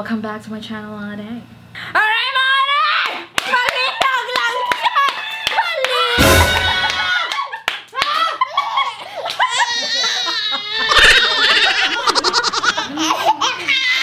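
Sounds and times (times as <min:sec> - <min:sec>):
women laughing: 0:06.4 - 0:14.0
infant crying: 0:09.4 - 0:14.0.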